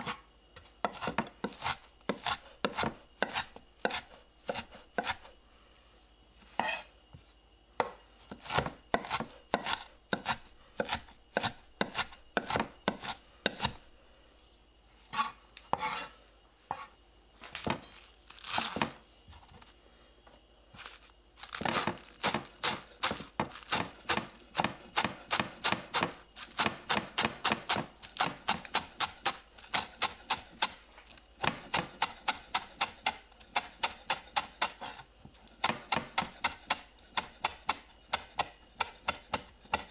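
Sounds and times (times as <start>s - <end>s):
knife chopping on wooden board: 0.0s - 5.3s, 7.8s - 13.8s, 17.6s - 19.0s, 21.6s - 30.8s, 35.6s - 39.9s.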